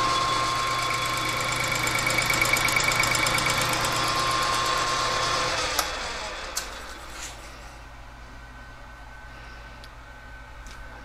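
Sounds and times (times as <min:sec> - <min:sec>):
metal lathe running: 0:00.0 - 0:07.0.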